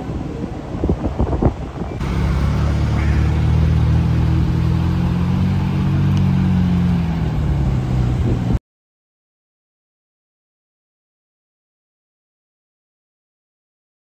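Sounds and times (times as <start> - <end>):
car engine running: 2.0 - 8.6.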